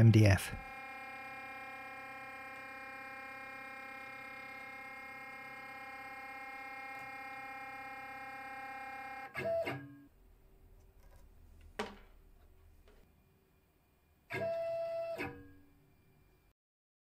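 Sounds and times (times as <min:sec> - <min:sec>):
stepper motor whining: 0:00.6 - 0:09.5.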